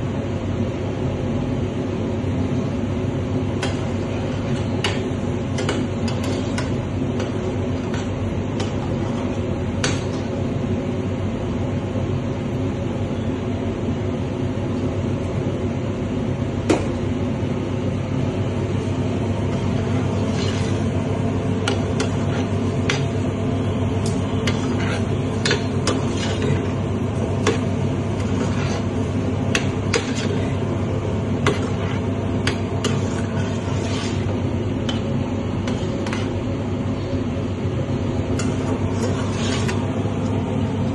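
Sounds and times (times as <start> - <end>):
droning kitchen hum: 0.0 - 40.9
metal spoon scraping a pan: 3.6 - 9.2, 19.5 - 21.0, 21.6 - 23.2, 24.4 - 30.7, 31.3 - 36.4, 38.4 - 39.9.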